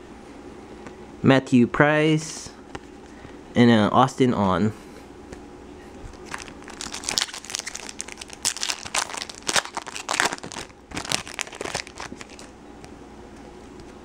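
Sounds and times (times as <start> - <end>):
foil wrapper crackling: 6.1 - 12.5.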